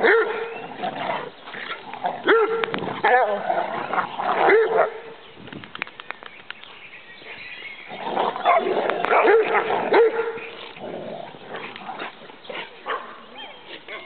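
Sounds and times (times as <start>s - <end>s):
dogs barking: 0.0s - 0.6s, 2.2s - 5.1s, 8.4s - 10.5s, 11.6s - 14.0s.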